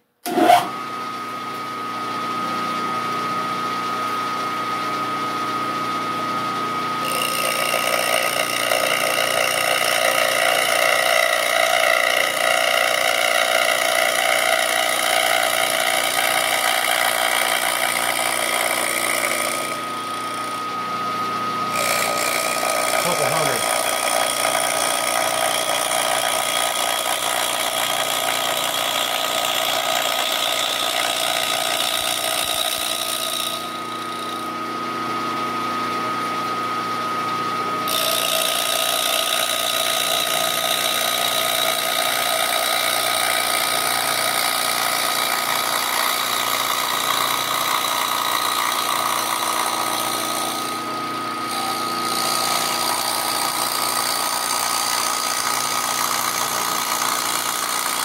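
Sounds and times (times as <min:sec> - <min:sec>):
milling machine running: 0:02.6 - 0:58.0
hissing cutting noise: 0:21.8 - 0:24.4.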